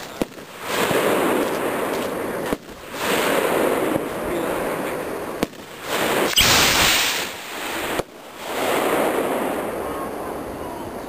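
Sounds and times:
fireworks rockets launching: 0:00.0 - 0:09.8
sharp crack: 0:05.4 - 0:08.2.

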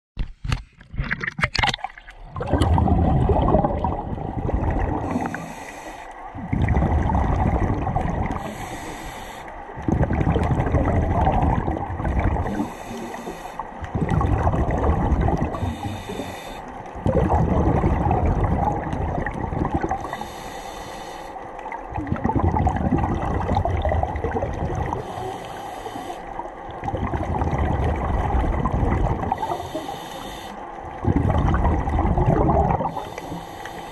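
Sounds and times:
exhaled bubbles rumbling: 0:00.8 - 0:09.0, 0:09.6 - 0:20.4, 0:21.6 - 0:25.6, 0:26.3 - 0:29.9, 0:30.8 - 0:33.9
regulator breathing hiss: 0:05.0 - 0:06.3, 0:08.4 - 0:09.7, 0:12.5 - 0:13.8, 0:15.6 - 0:16.8, 0:20.0 - 0:21.4, 0:25.0 - 0:26.5, 0:29.4 - 0:30.7, 0:32.9 - 0:33.9.

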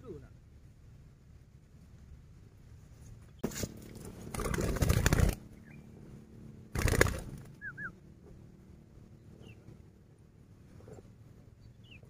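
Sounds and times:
dove wings flapping: 0:03.4 - 0:05.6, 0:06.7 - 0:07.8.

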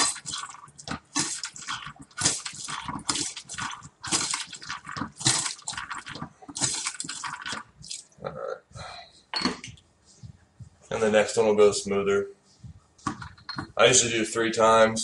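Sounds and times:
bottle rinser squirting: 0:00.0 - 0:08.2.

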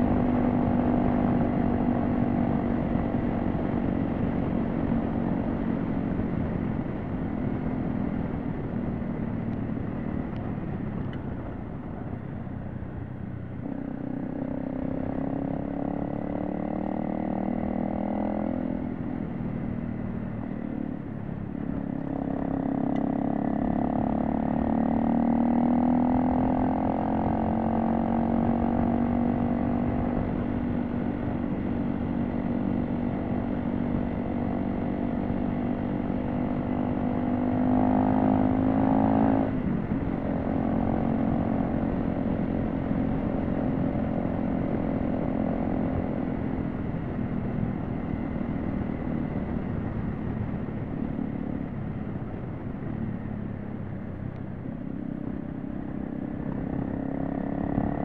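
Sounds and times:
road and wind noise: 0:00.0 - 0:58.0
motorcycle engine revving: 0:13.6 - 0:58.0.

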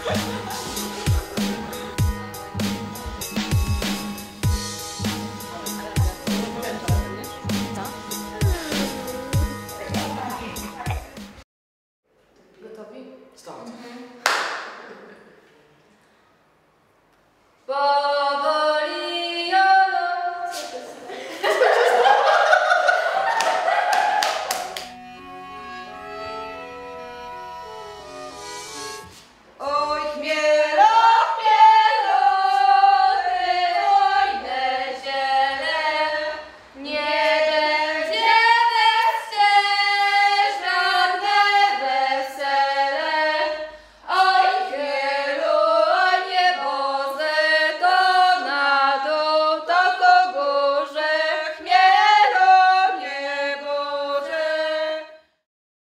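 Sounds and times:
women singing in harmony: 0:29.6 - 0:55.2.

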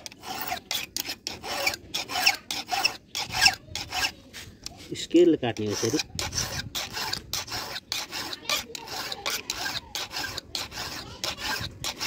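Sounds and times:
file rasping on chainsaw chain: 0:00.0 - 0:04.2, 0:05.5 - 0:12.0.

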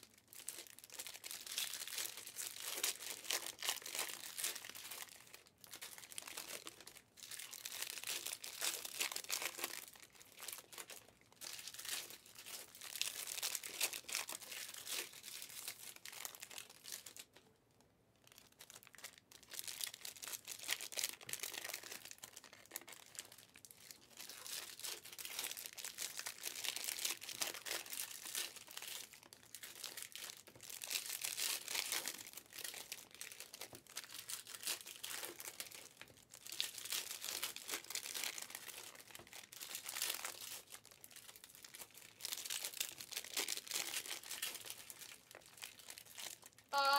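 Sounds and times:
wrappers torn and crinkled: 0:00.0 - 0:17.5, 0:18.2 - 0:46.9.

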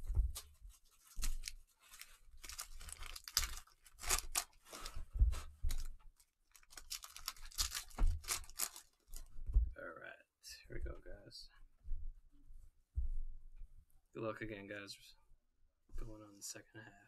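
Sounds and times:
cellophane wrappers crinkling: 0:00.6 - 0:05.0, 0:05.7 - 0:09.3
dull low thumps: 0:11.8 - 0:13.9.

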